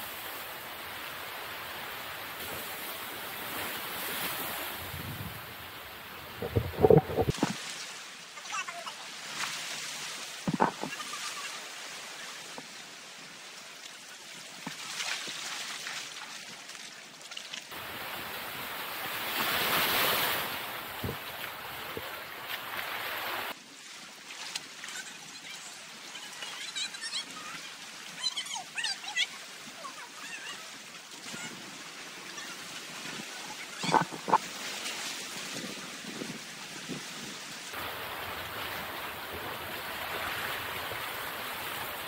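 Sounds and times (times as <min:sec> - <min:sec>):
surf washing against rocks: 0:00.0 - 0:12.7, 0:17.7 - 0:23.6, 0:29.8 - 0:42.0
wind on microphone: 0:04.5 - 0:07.6, 0:10.4 - 0:10.9, 0:21.0 - 0:22.1, 0:33.8 - 0:34.5.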